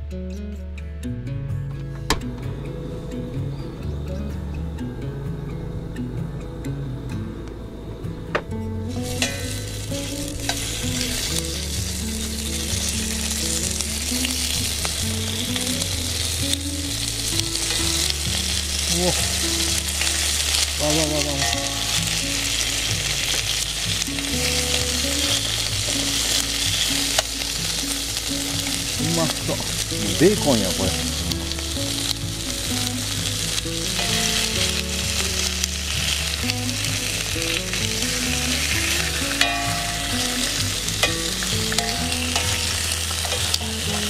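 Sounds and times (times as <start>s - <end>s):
bacon sizzling in a pan: 8.9s - 44.0s.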